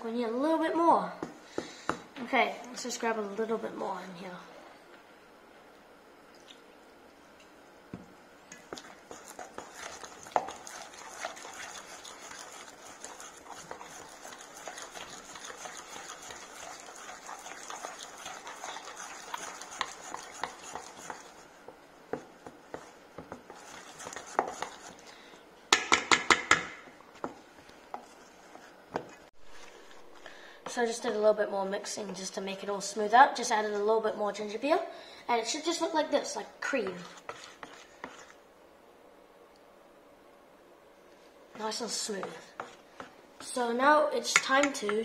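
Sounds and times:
spoon scraping metal bowl: 0:08.8 - 0:21.4, 0:23.5 - 0:25.0, 0:36.8 - 0:38.4.

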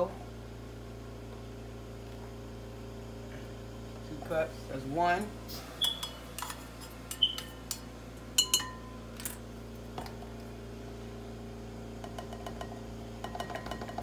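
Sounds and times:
metal cup clinking on glass bowl: 0:08.4 - 0:08.9, 0:12.0 - 0:14.0.

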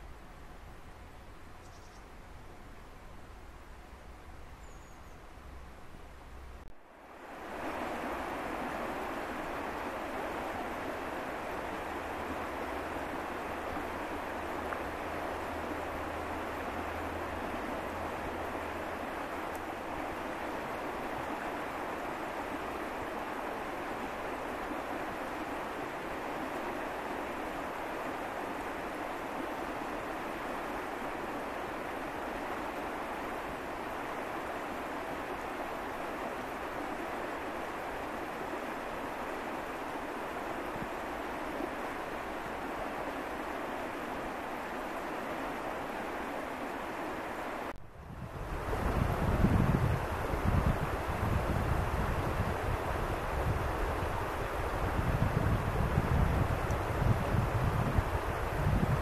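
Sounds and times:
water rushing over stones: 0:07.2 - 0:47.7.

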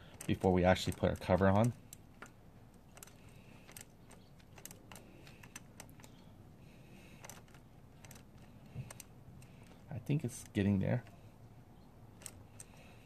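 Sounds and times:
socket wrench clicking: 0:00.0 - 0:06.2, 0:07.2 - 0:09.8, 0:12.1 - 0:13.0.

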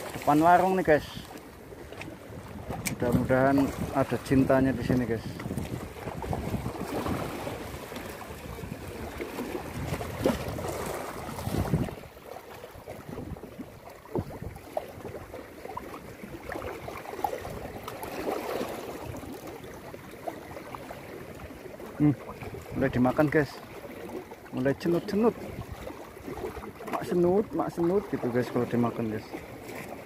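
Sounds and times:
seawater washing against rocks: 0:00.0 - 0:30.0
wind buffeting microphone: 0:01.0 - 0:12.1, 0:12.8 - 0:15.3.

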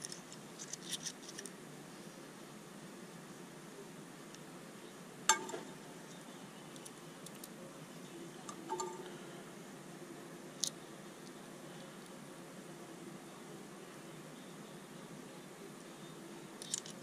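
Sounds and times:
steel parts clinking: 0:16.6 - 0:17.0.

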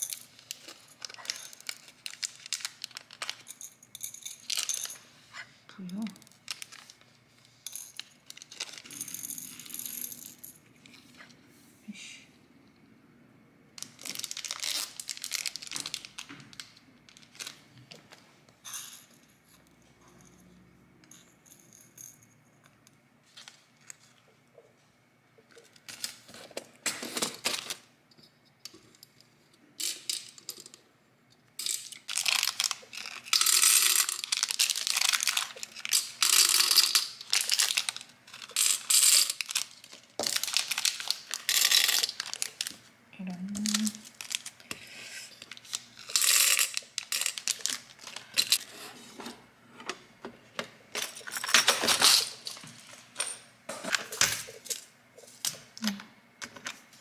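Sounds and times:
plastic packets crinkling: 0:00.0 - 0:03.6, 0:06.3 - 0:07.1, 0:08.0 - 0:09.0, 0:13.8 - 0:17.7, 0:31.6 - 0:42.9, 0:43.5 - 0:44.7, 0:45.4 - 0:48.6.

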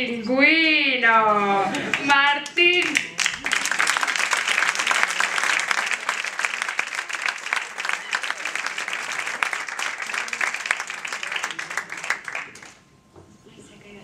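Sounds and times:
audience applauding: 0:01.9 - 0:12.8.

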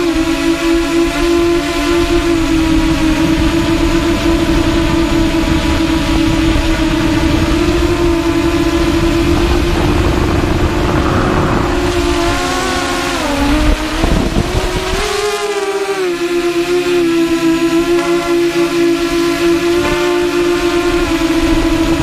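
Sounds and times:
drone motors whining: 0:00.0 - 0:22.0
low rushing noise: 0:02.0 - 0:15.0.

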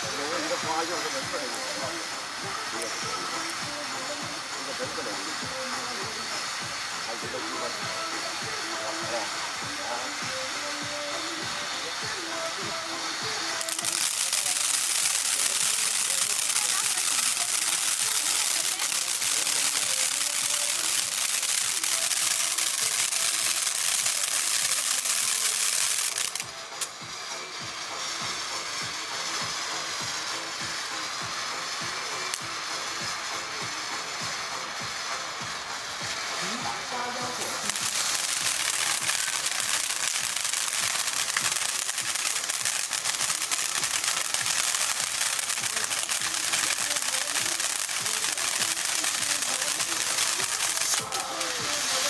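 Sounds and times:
firework fountain hissing and crackling: 0:00.0 - 0:52.0
sharp crack: 0:13.6 - 0:27.0.

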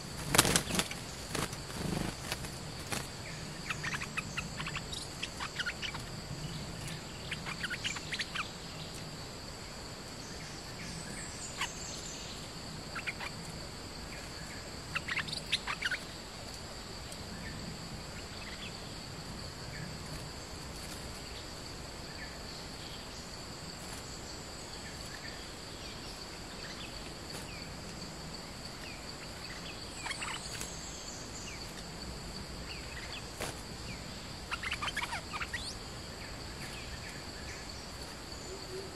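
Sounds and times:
insects droning: 0:00.0 - 0:38.9
bulbuls calling: 0:34.4 - 0:35.8.

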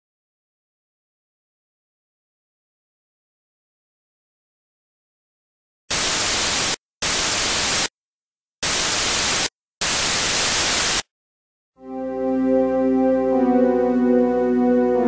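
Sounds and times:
white noise hiss bursts: 0:05.9 - 0:07.9, 0:08.6 - 0:11.1.

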